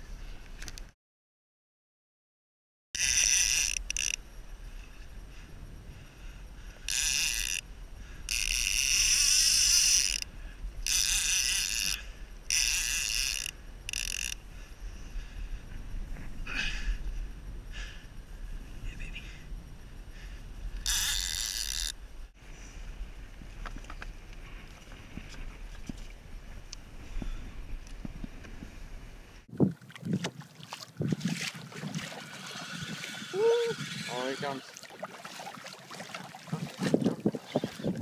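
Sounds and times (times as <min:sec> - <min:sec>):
fishing reel buzzing: 0:03.0 - 0:04.3, 0:06.8 - 0:14.4, 0:20.8 - 0:22.0, 0:32.1 - 0:34.9
wind buffeting microphone: 0:22.8 - 0:38.0
water slapping kayak hull: 0:29.7 - 0:38.0.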